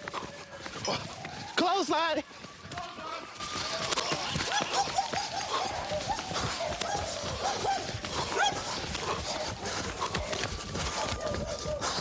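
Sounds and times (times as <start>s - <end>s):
dog yelping: 4.5s - 12.0s.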